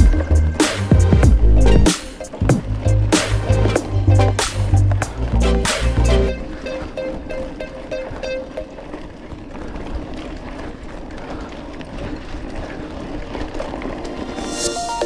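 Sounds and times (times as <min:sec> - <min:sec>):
background music: 0:00.0 - 0:08.9, 0:14.2 - 0:15.0
rough wind and riding noise: 0:00.0 - 0:15.0.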